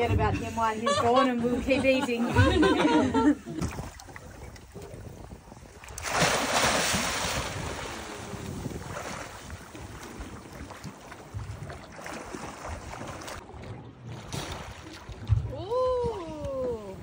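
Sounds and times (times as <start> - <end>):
wind on microphone: 2.3 - 13.4, 14.2 - 17.0
seawater sloshing and splashing: 3.4 - 16.4.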